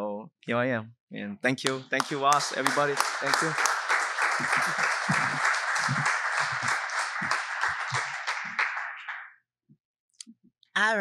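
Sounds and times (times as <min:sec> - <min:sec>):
audience applauding: 0:01.6 - 0:09.3.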